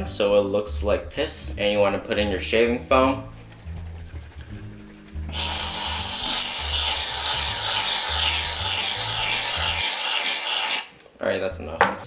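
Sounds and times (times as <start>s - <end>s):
aerosol can spraying foam: 5.3s - 10.9s.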